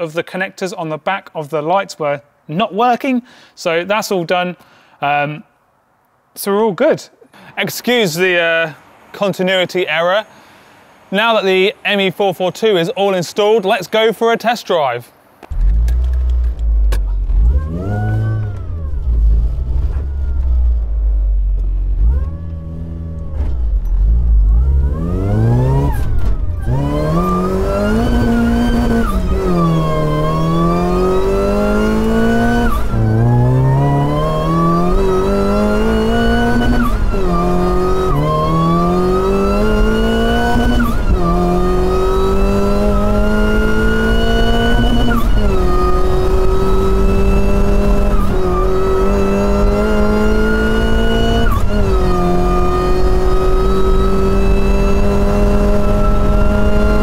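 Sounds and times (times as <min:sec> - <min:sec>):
car engine accelerating through gears: 0:15.5 - 0:57.0.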